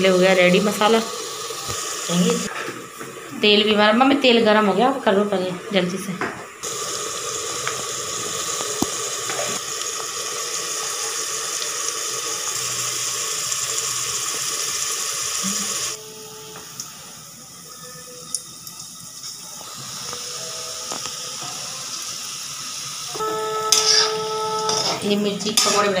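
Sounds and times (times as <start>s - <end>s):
spices sizzling in hot oil: 0.0s - 5.8s, 6.6s - 26.0s
oil popping: 6.6s - 10.3s
fritters deep-frying: 6.6s - 26.0s.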